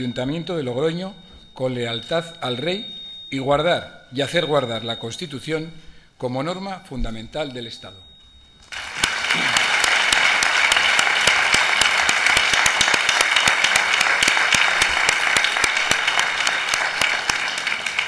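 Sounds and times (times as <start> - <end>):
people clapping: 8.6 - 18.0.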